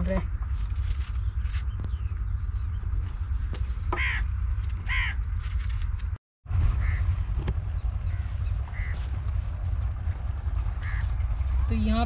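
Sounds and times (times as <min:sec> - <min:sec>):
steady low rumble: 0:00.0 - 0:12.0
crows cawing: 0:03.9 - 0:05.2, 0:06.8 - 0:07.1, 0:08.0 - 0:09.3, 0:10.5 - 0:11.5.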